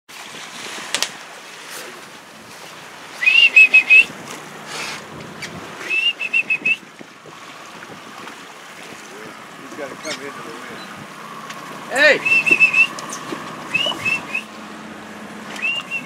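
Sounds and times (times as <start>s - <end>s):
eagle piping chirps: 12.2s - 14.6s, 15.6s - 16.0s.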